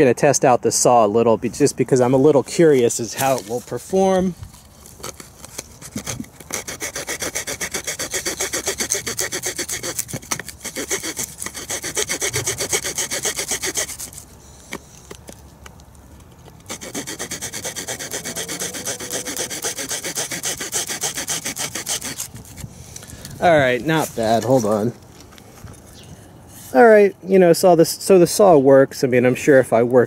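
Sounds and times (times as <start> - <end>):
saw cutting wood: 5.0 - 14.3, 16.6 - 22.6.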